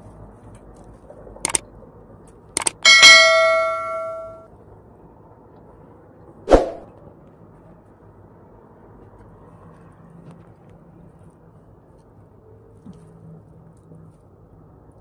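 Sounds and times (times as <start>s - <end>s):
struck plate ringing: 2.6s - 4.4s.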